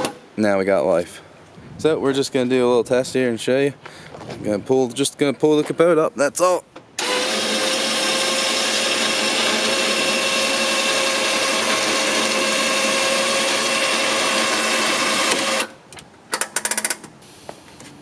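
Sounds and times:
electric winch motor whine: 7.0 - 15.8.

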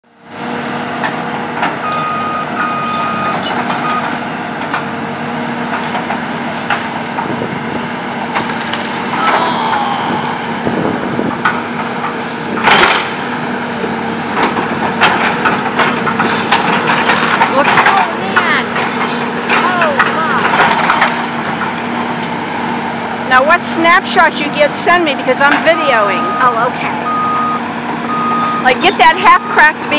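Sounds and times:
excavator running: 0.0 - 29.9.

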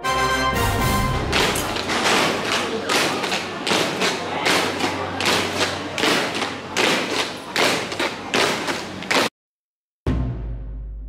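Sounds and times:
boots marching on stone: 1.3 - 9.3.

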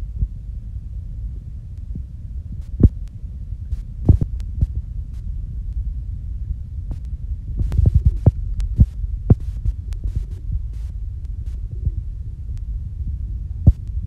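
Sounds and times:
wind buffeting microphone: 0.0 - 14.0.

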